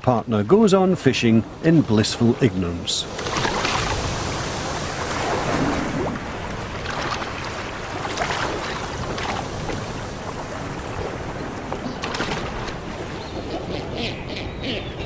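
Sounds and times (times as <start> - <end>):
choppy sea water washing: 0.0 - 13.9
seabirds splashing into water: 3.0 - 13.2.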